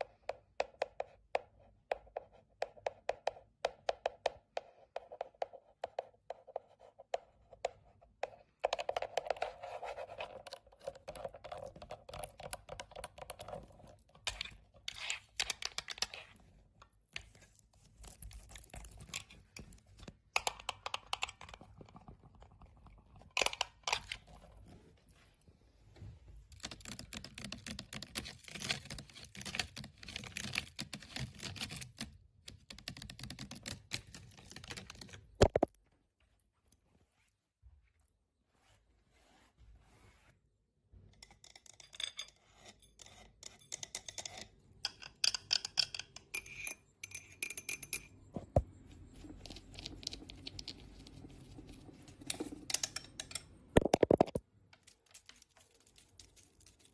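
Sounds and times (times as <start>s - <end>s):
nails tapping on plastic: 0.2s - 7.8s, 32.5s - 35.7s, 52.3s - 54.4s.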